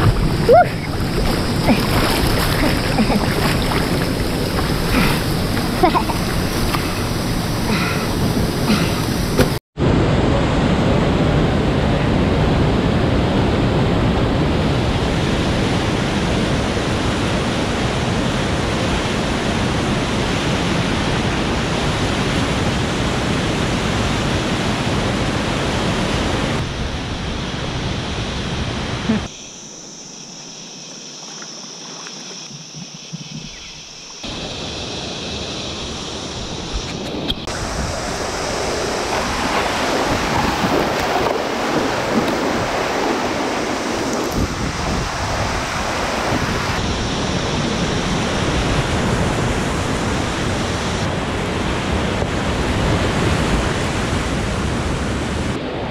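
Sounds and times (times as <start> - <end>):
water rushing over rocks: 0.0 - 10.4, 30.9 - 52.0.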